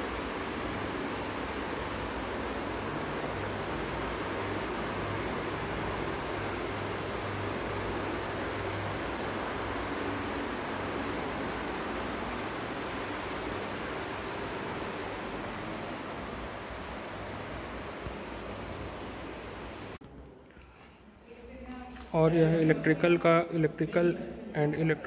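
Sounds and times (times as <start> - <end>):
steady rushing noise: 0.0 - 20.0
crickets chirping: 0.0 - 25.0.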